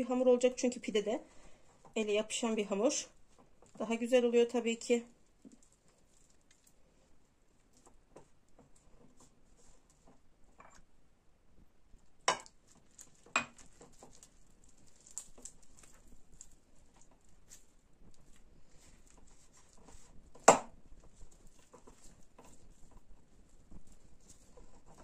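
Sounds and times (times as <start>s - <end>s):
hands squeezing dough: 1.2s - 11.0s, 11.9s - 25.0s.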